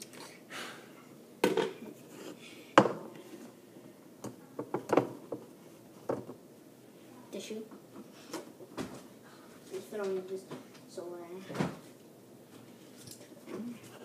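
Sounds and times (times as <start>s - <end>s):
kitchenware clattering: 1.4s - 2.0s.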